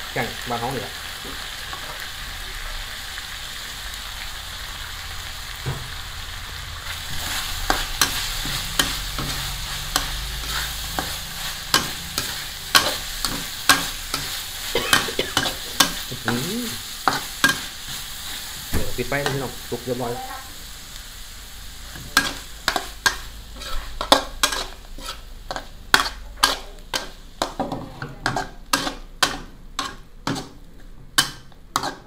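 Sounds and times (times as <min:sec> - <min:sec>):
food sizzling in a wok: 0:00.0 - 0:32.0
metal spatula scraping a wok: 0:06.8 - 0:18.6, 0:21.8 - 0:30.6, 0:31.2 - 0:32.0.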